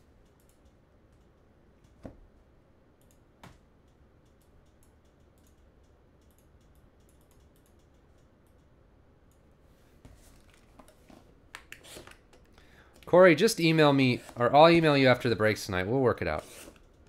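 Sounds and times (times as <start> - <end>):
soft clicks: 0.2 - 2.0, 3.0 - 9.5.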